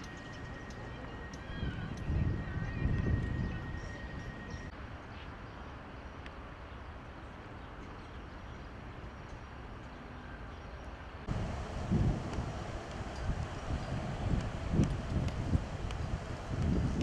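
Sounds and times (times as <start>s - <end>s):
faint thin whine: 11.3s - 17.0s
low outdoor rumble: 11.3s - 17.0s.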